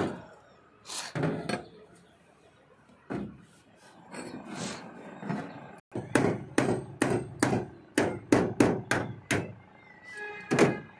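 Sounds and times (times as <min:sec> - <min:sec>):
hammer striking steel and timber: 0:05.9 - 0:09.6.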